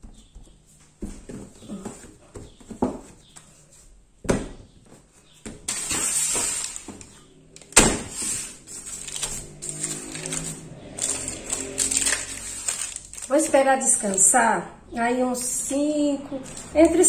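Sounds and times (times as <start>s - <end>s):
paper rustling: 5.1s - 14.3s, 16.4s - 17.0s.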